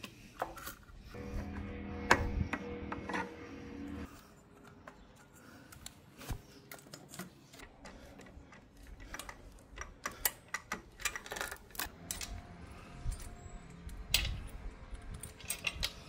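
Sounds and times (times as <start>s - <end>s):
hand tools clicking and tapping: 6.7s - 12.3s.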